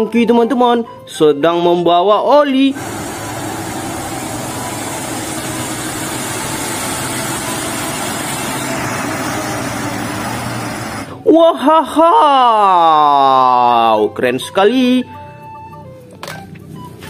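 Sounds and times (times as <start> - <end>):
truck diesel engine running: 2.7 - 11.2.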